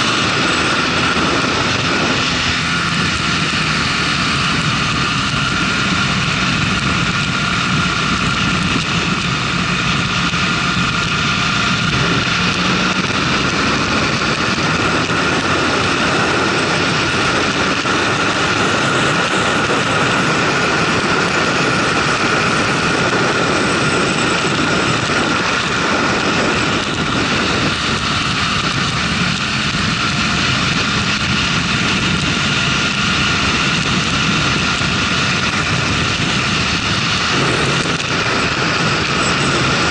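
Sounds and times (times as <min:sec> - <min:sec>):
motorcycle engine drone: 0:00.0 - 0:39.9
wind rush on microphone: 0:00.0 - 0:39.9.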